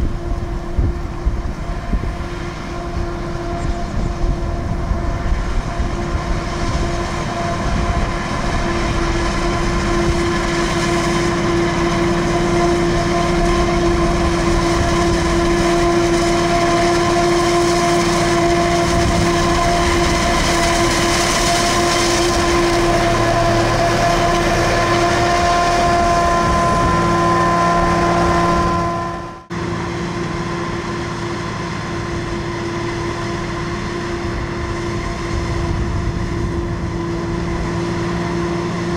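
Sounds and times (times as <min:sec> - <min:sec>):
forage harvester drone: 0:00.0 - 0:38.9
high whine: 0:00.0 - 0:38.9.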